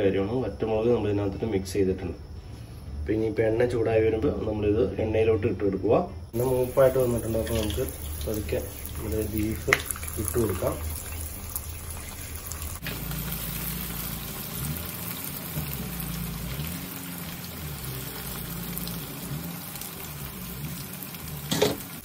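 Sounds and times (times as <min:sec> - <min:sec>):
meat sizzling in hot oil: 0:06.4 - 0:22.0.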